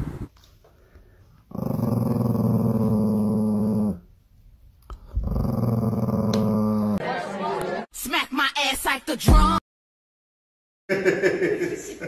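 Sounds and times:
small dog growling: 1.5s - 4.0s, 5.0s - 7.0s.

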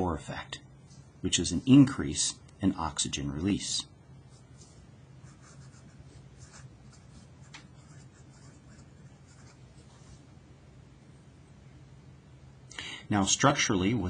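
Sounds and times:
faint low hum: 0.0s - 14.0s
marker pen scratching on paper: 4.3s - 10.3s.

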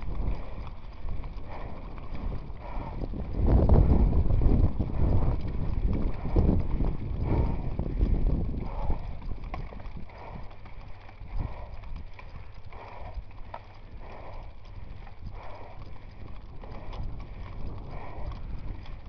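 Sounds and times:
bike rattling over bumps: 0.0s - 19.0s
wind buffeting microphone: 0.0s - 19.0s.

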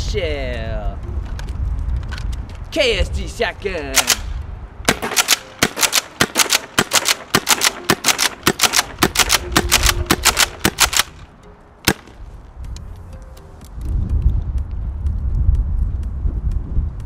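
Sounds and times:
airsoft shotgun firing: 4.0s - 11.2s, 11.8s - 12.2s
shotgun pump clacks: 4.0s - 12.2s.

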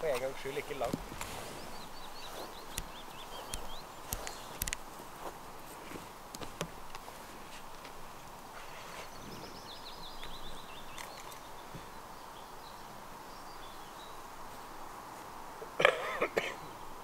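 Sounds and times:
songbird trilling: 0.0s - 4.7s, 8.6s - 14.2s.

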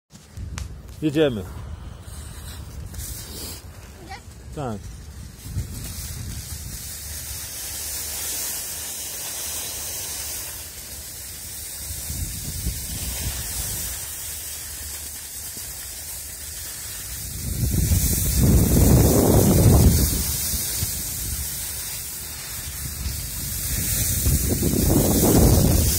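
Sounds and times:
wind rumble on microphone: 0.2s - 7.9s, 11.7s - 14.2s, 16.8s - 25.9s
skis hissing on snow: 0.2s - 25.9s.

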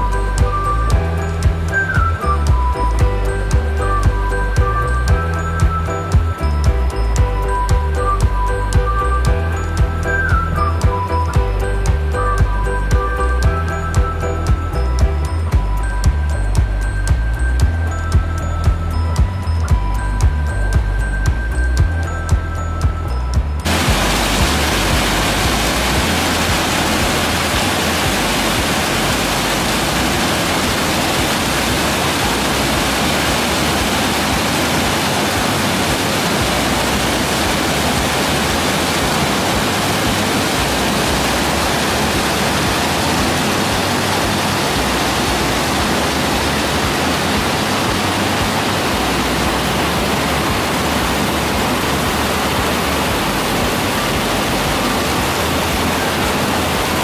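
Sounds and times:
water pouring into pool: 23.6s - 57.0s.

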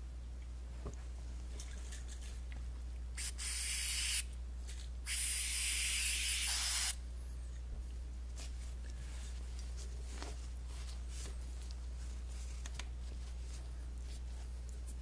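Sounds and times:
aerosol can spraying: 3.2s - 4.2s, 5.1s - 7.0s.

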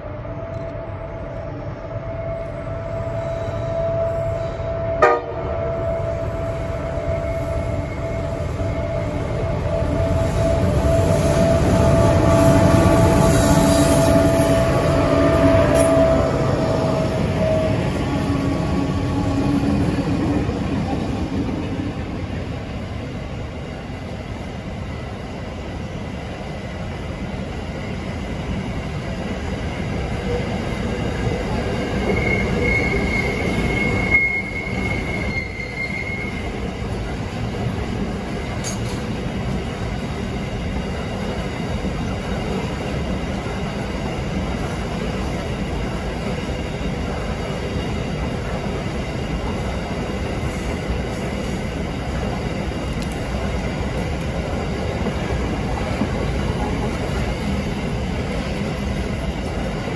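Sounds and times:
train rumbling on rails: 0.0s - 59.9s
high wheel squeal: 32.0s - 36.7s.

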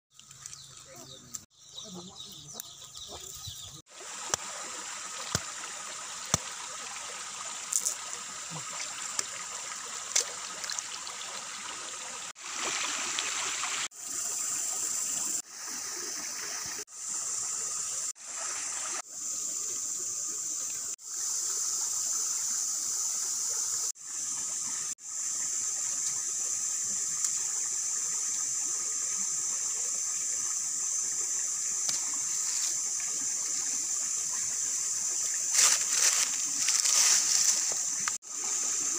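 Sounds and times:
running water rushing: 3.0s - 38.9s
high hiss: 12.5s - 38.9s.

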